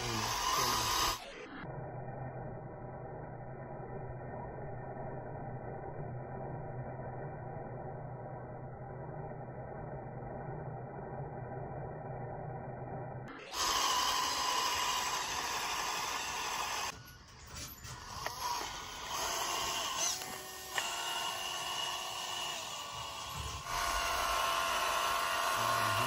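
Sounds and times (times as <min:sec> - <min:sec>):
small motor whining: 0:00.0 - 0:02.2, 0:13.3 - 0:26.0.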